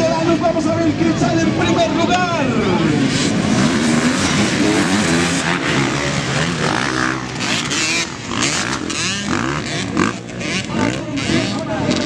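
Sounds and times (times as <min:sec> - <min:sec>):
dirt bike engines revving: 0:00.0 - 0:12.0.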